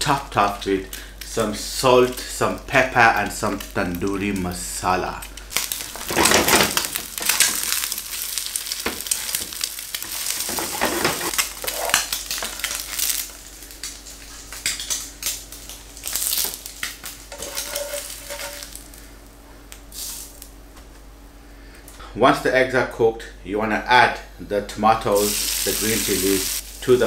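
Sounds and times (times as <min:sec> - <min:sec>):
eggs sizzling in oil: 0:00.9 - 0:20.5, 0:25.1 - 0:27.0
spatula scraping a pan: 0:08.8 - 0:12.0, 0:17.3 - 0:18.8.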